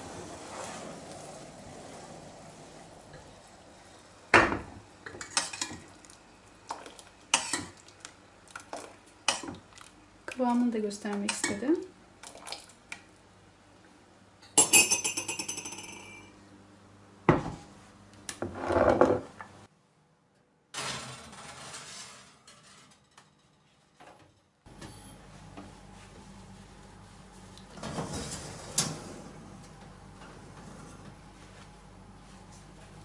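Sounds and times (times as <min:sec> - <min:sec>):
glass dish scraping on wire rack: 0:20.8 - 0:23.2.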